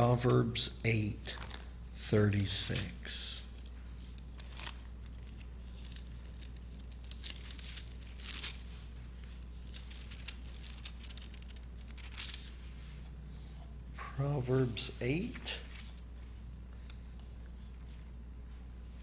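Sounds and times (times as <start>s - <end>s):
steady low hum: 0.0s - 19.0s
thin pages rustling: 1.3s - 1.7s, 3.6s - 13.1s, 15.6s - 16.3s.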